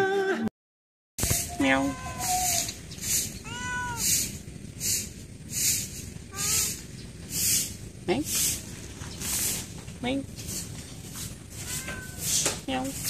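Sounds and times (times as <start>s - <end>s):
high pulsing hiss: 1.2s - 11.6s
cat meowing: 1.3s - 4.4s, 6.3s - 6.8s, 11.5s - 12.5s.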